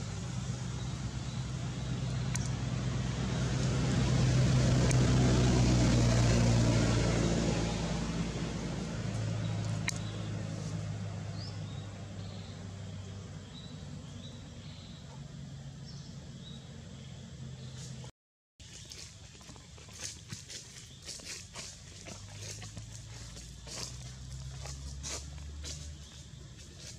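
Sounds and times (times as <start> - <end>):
vehicle engine passing: 0.0 - 18.1, 18.9 - 26.9.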